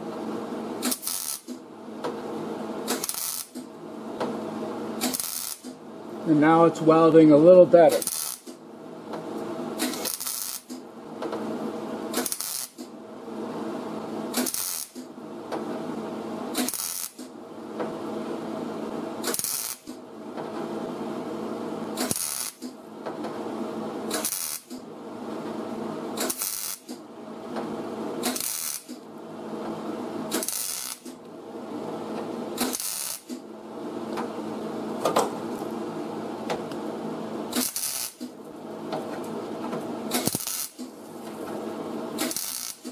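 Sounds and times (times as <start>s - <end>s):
welding arc crackling: 0.8s - 1.6s, 2.8s - 3.7s, 5.0s - 5.8s, 6.4s - 8.6s, 9.7s - 10.9s, 12.1s - 12.9s, 14.3s - 15.1s, 16.5s - 17.4s, 19.2s - 20.0s, 21.9s - 22.8s, 24.1s - 24.8s, 26.1s - 27.0s, 28.2s - 29.2s, 30.3s - 31.2s, 32.5s - 33.5s, 37.5s - 38.6s, 40.0s - 42.9s.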